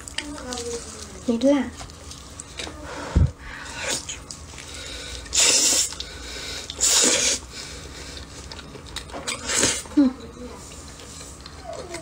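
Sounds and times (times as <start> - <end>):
wet chewing mouth sounds: 3.6 - 10.0.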